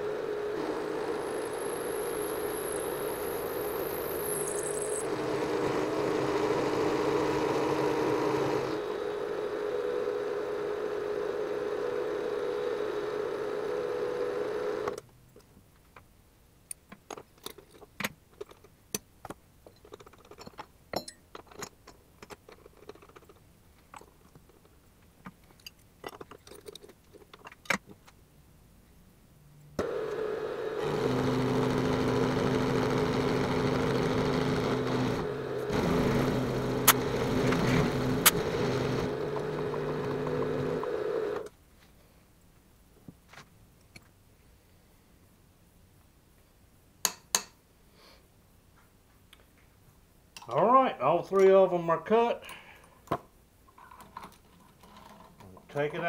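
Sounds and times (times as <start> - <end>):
milling machine cutting metal: 0.0 - 15.0, 29.8 - 41.5.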